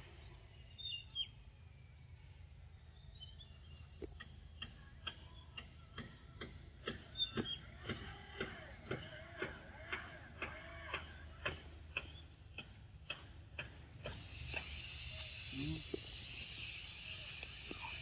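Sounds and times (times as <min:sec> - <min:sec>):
steady high buzz: 0:12.3 - 0:18.0.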